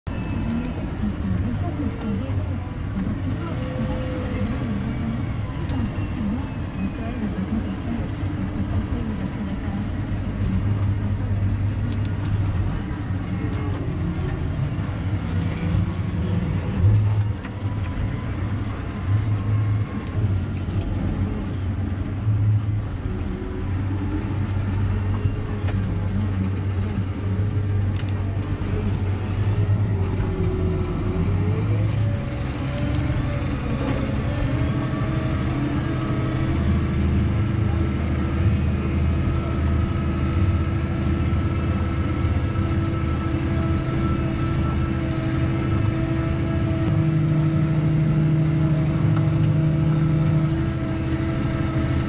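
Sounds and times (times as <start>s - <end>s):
tractor diesel engine drone: 0.0s - 52.0s.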